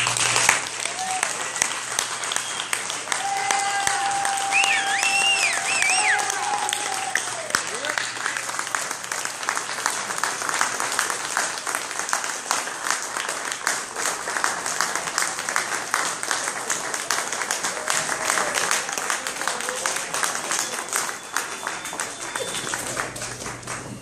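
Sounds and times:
audience applauding: 0:00.0 - 0:24.0
voices in crowd: 0:14.0 - 0:23.4.

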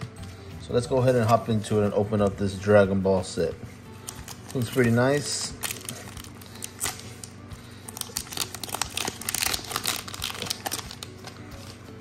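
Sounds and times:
foil wrapper tearing and crinkling: 0:04.0 - 0:07.3, 0:07.9 - 0:11.8.

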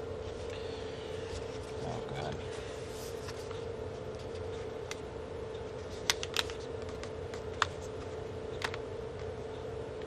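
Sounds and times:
steady low hum: 0:00.0 - 0:10.0.

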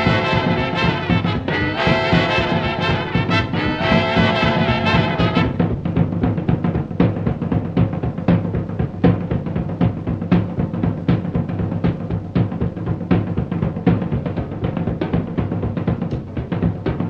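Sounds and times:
low sustained bass notes: 0:00.0 - 0:05.8
drum beat: 0:00.0 - 0:17.0.

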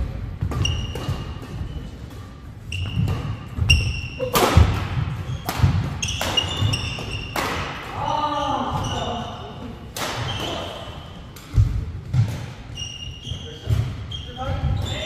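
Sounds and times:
racket hitting shuttlecock: 0:00.4 - 0:07.9, 0:09.9 - 0:10.7
shoe squeaks: 0:00.6 - 0:02.0, 0:02.6 - 0:04.4, 0:05.2 - 0:07.4, 0:08.4 - 0:09.6, 0:10.2 - 0:11.3, 0:12.7 - 0:15.0.

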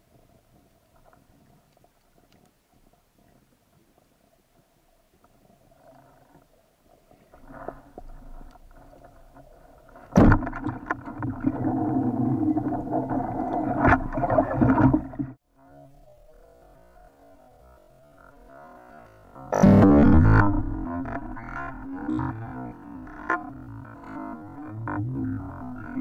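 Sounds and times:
underwater churning and rumbling: 0:05.4 - 0:15.4, 0:16.0 - 0:26.0.

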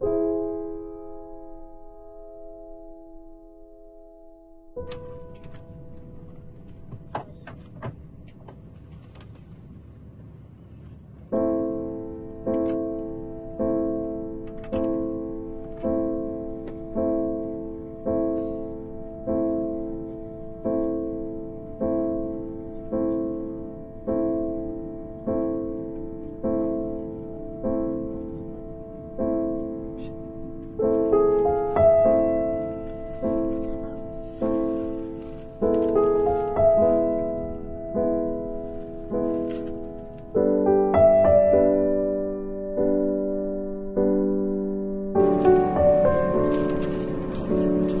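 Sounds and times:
piano music with ringing notes: 0:00.0 - 0:08.2, 0:11.3 - 0:48.0
low rumbling background noise: 0:04.7 - 0:48.0.

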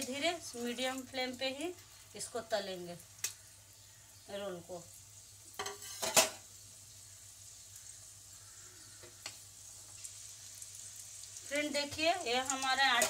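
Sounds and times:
oil sizzling: 0:00.0 - 0:13.0.

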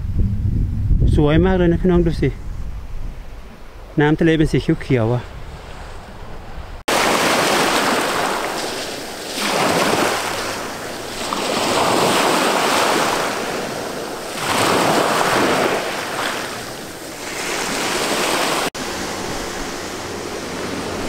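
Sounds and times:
waves washing over pebbles: 0:06.9 - 0:19.9.

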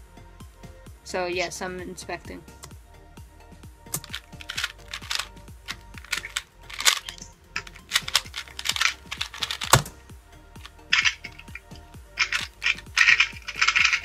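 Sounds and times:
speed cube clicking and rattling: 0:04.0 - 0:09.9, 0:10.6 - 0:14.0.

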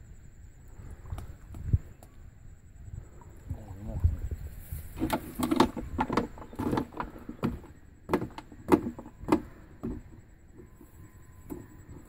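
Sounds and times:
bamboo trap knocking and rattling: 0:05.0 - 0:10.2.

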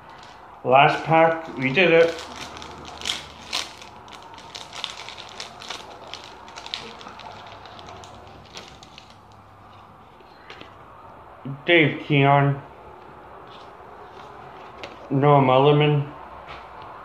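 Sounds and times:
foil wrapper crinkling: 0:00.0 - 0:09.5.

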